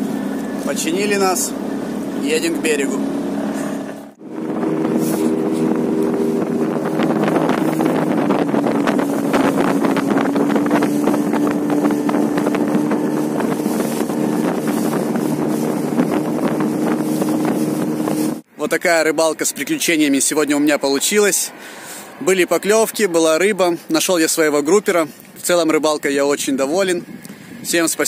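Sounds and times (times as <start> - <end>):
boat engine running: 0.0 - 18.5
wind buffeting microphone: 0.0 - 18.5, 22.0 - 28.0.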